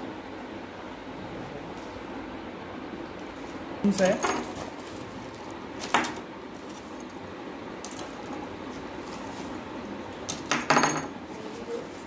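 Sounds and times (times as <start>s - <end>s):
metal lures clinking on wood: 10.3s - 11.2s.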